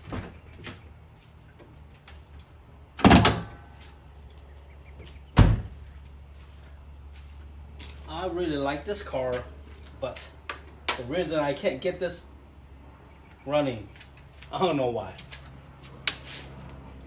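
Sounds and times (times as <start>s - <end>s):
car door slamming: 5.4s - 5.7s.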